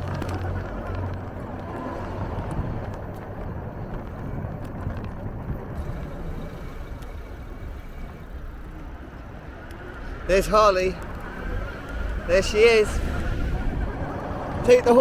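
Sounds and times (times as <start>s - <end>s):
wind rushing over microphone: 0.0s - 6.1s, 9.3s - 15.0s
tyre and road noise: 0.0s - 15.0s.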